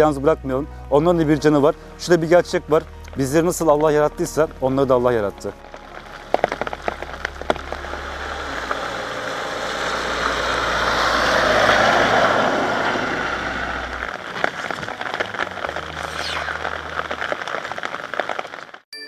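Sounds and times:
rain: 5.4 - 18.8
tyres hissing on wet road: 5.7 - 18.8.

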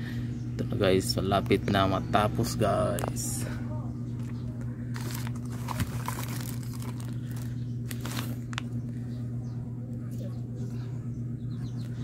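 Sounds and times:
low electrical hum: 0.0 - 12.0
plastic packaging crinkling: 4.9 - 8.8.

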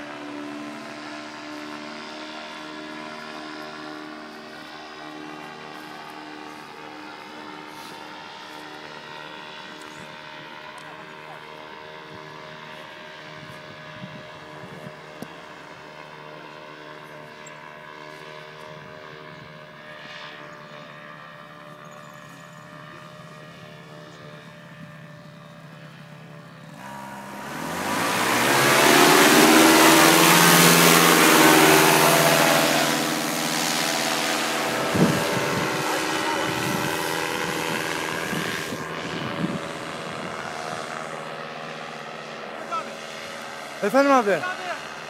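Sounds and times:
distant paramotor droning: 0.0 - 45.0
paramotor engine revving close: 23.0 - 45.0.

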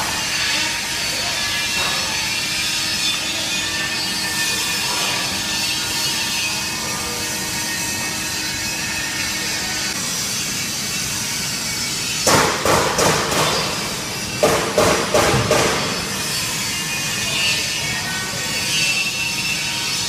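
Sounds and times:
sharp knocks: 12.2 - 13.7, 14.4 - 16.0.

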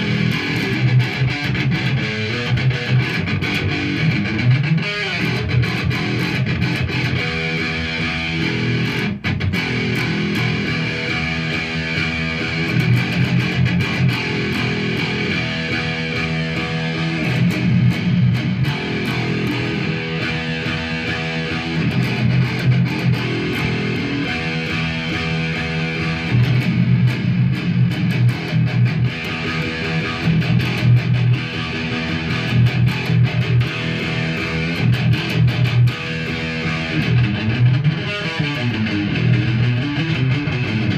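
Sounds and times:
electric guitar riff: 0.0 - 40.9.

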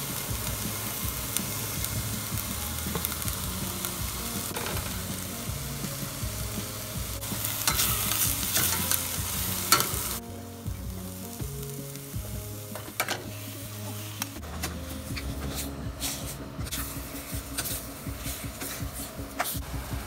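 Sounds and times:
onion and garlic sizzling in a pan: 0.0 - 20.0
spatula scraping a pan: 14.5 - 19.6.

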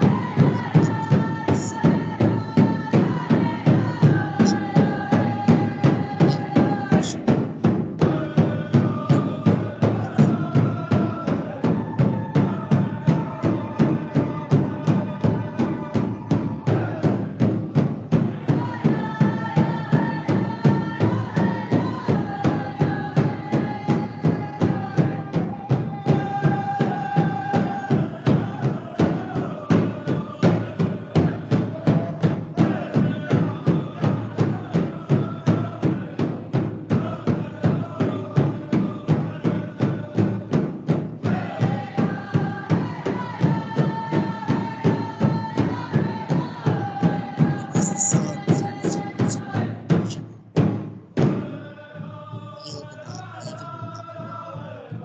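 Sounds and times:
steady drumbeat: 0.0 - 55.0.

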